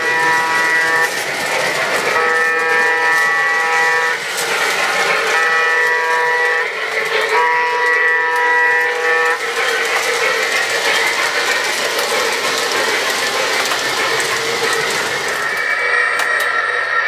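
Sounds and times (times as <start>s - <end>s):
model train air horn: 0.0s - 1.2s, 1.9s - 4.3s, 5.1s - 10.6s
train wheels clattering on track: 0.0s - 16.6s.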